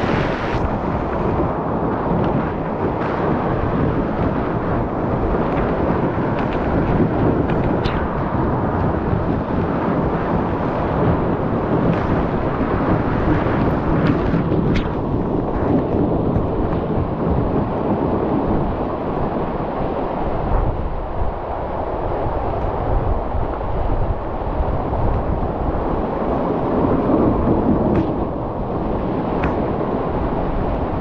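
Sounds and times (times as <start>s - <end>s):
waterfall rushing into sea: 0.0s - 23.5s.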